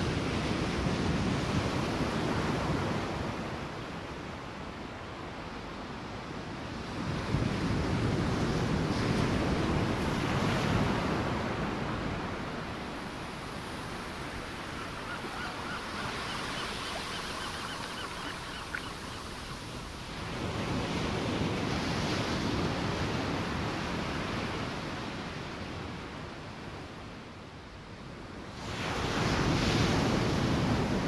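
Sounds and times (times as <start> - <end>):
surf washing over rocks: 7.2 - 24.5
distant sea lions honking: 13.2 - 19.9.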